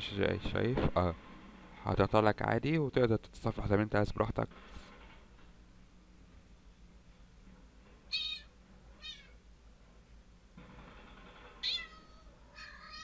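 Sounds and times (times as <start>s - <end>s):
recorded cat meows from phone: 11.6s - 13.0s.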